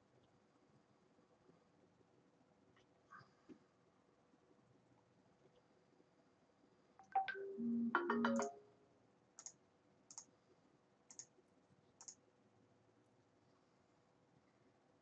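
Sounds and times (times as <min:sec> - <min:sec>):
electronic jingle: 0:07.1 - 0:08.8.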